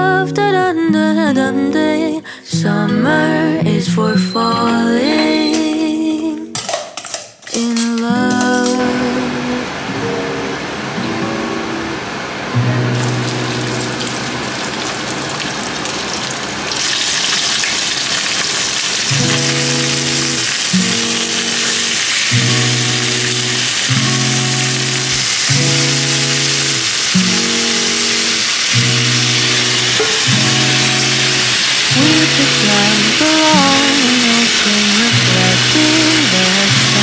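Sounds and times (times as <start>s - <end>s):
chicken frying in oil: 12.9s - 37.0s.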